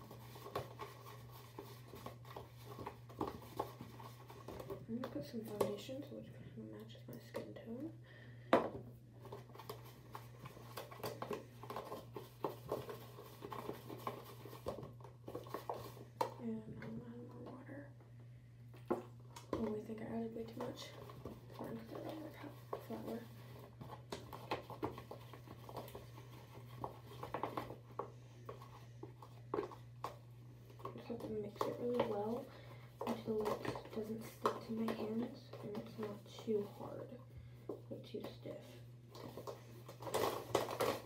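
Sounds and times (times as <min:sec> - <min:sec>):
brush stirring thick paste: 0:00.0 - 0:05.6
steady low hum: 0:00.0 - 0:41.0.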